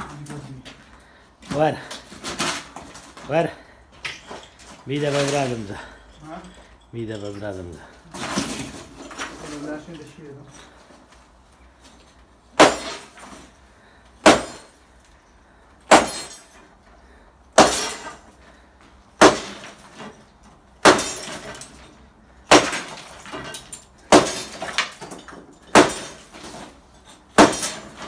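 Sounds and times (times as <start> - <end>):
broken concrete pieces clattering: 0.0 - 11.2, 19.2 - 28.0
sledgehammer striking concrete: 12.5 - 13.5, 14.2 - 14.8, 15.8 - 16.6, 17.5 - 18.3, 19.2 - 20.2, 20.8 - 21.8, 22.4 - 28.0.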